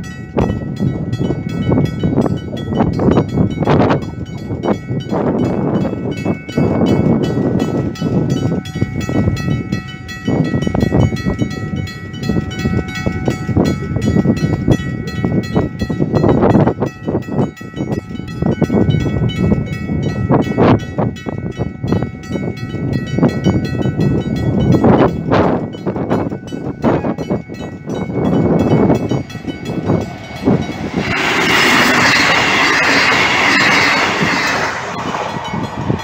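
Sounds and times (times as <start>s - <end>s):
level crossing warning bell: 0.0s - 36.0s.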